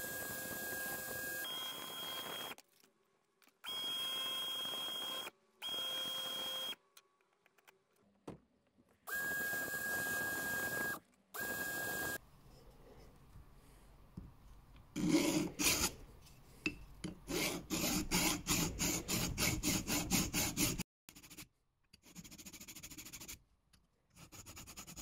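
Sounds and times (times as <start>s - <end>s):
cordless drill motor whine: 0.0s - 2.6s, 3.6s - 6.8s, 9.1s - 12.2s
screw grinding on sandpaper: 15.0s - 16.1s.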